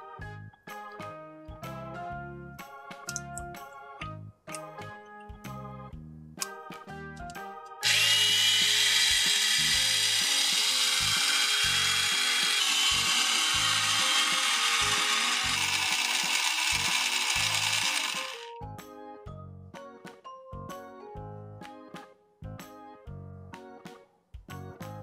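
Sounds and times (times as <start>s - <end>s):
light background music: 0.0s - 25.0s
small pump motor whirring: 7.8s - 18.5s.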